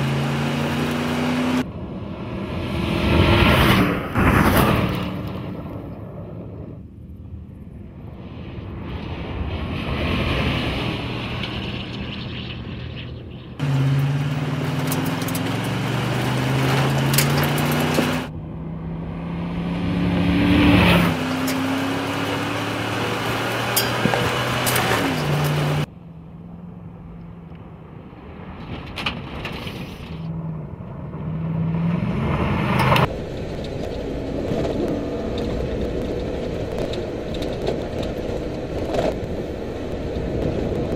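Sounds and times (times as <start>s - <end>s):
truck engine revving hard: 0.0s - 1.6s, 13.6s - 18.3s, 19.1s - 25.9s
tyres on gravel: 11.0s - 18.3s, 21.1s - 25.9s.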